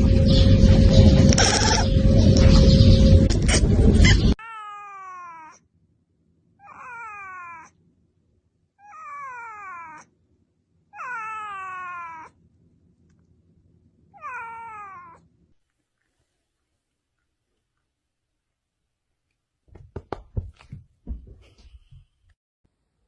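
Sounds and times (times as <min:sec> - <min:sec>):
cat meowing: 0:04.4 - 0:05.6, 0:06.6 - 0:07.8, 0:08.8 - 0:10.1, 0:10.9 - 0:12.4, 0:14.1 - 0:15.3.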